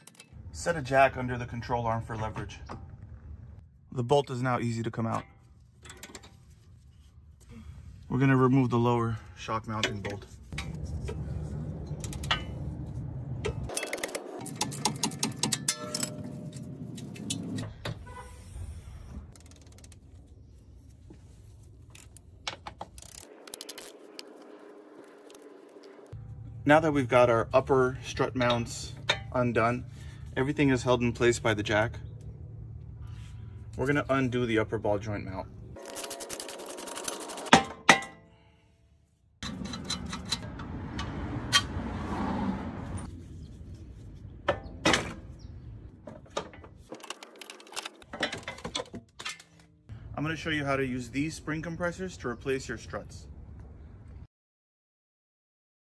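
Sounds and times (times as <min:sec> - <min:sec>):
metal tools clanking: 0:05.0 - 0:06.5, 0:09.7 - 0:12.8, 0:13.4 - 0:17.7, 0:27.5 - 0:29.9, 0:39.4 - 0:41.7, 0:46.0 - 0:49.8.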